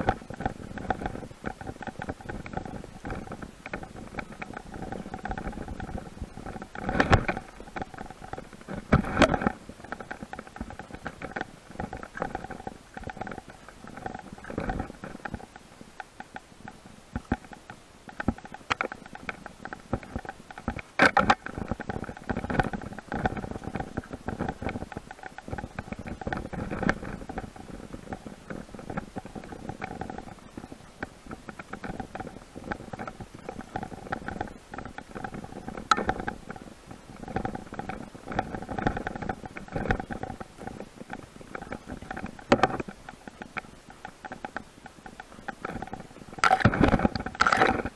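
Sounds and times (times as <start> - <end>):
mountain bike rattling on dirt trail: 0.0 - 15.6.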